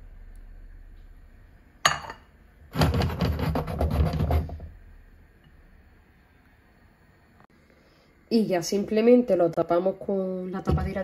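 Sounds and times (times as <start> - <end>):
bowl knocking on stone countertop: 1.8 - 2.3
clattering and rubbing: 2.7 - 4.7.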